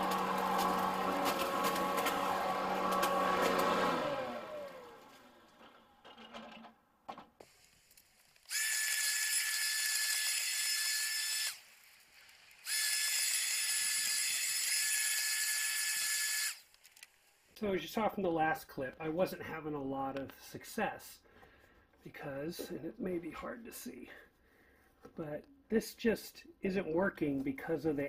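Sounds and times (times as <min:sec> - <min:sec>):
leaf vacuum motor whine: 0:00.0 - 0:06.5.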